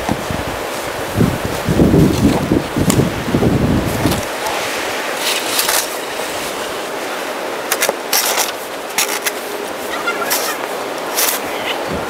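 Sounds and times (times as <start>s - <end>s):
steady hiss: 0.0s - 12.0s
snow shovel scraping snow: 3.9s - 7.0s, 7.6s - 11.8s.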